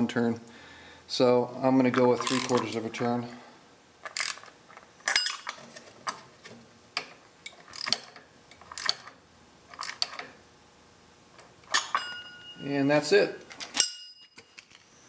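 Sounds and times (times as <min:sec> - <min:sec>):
socket ratchet clicking: 0:04.0 - 0:04.5.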